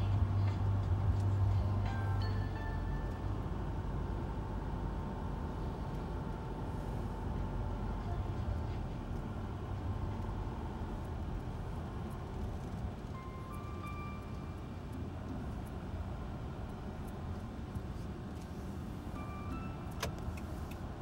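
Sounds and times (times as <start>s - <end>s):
car driving on asphalt road: 0.0s - 21.0s.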